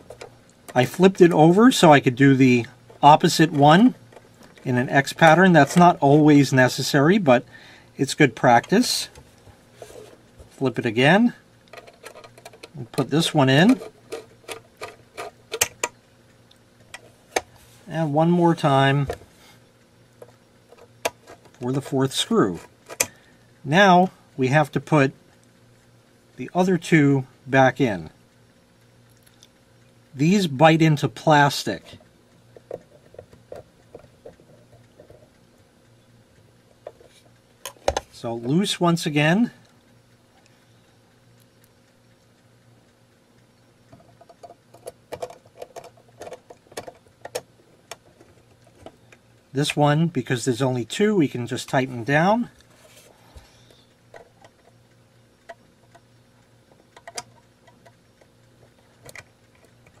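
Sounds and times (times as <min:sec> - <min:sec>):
screwdriver clicks and ticks: 0:56.8 - 0:58.3.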